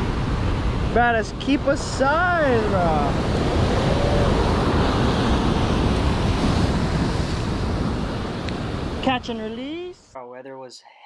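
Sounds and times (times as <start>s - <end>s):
surf breaking on shore: 0.0s - 9.8s
wind buffeting microphone: 0.0s - 9.8s.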